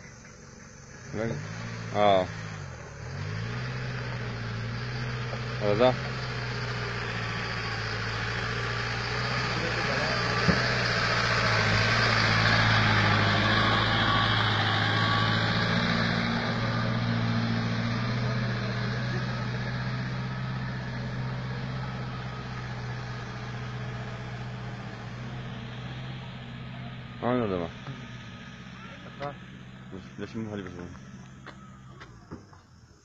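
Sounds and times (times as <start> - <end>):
truck engine under load: 0.0 - 33.0.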